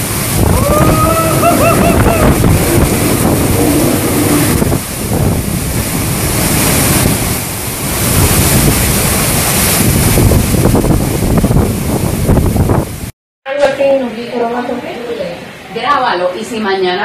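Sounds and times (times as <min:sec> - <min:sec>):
strong wind gusting through trees: 0:00.0 - 0:13.1
wind buffeting microphone: 0:00.0 - 0:13.1
driving rain: 0:00.0 - 0:16.4.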